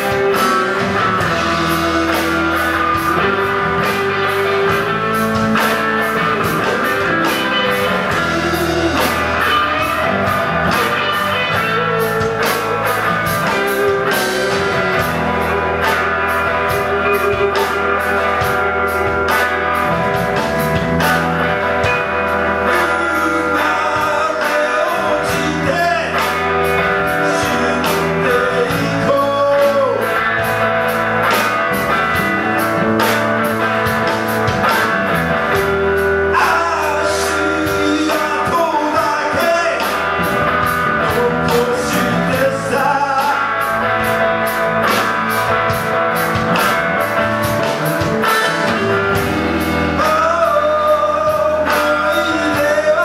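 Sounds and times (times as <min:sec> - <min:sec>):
drums keeping steady beat: 0:00.0 - 0:53.0
electric guitars: 0:00.0 - 0:53.0
male vocalist singing: 0:06.5 - 0:14.7, 0:22.4 - 0:30.2, 0:36.3 - 0:44.1, 0:49.8 - 0:53.0.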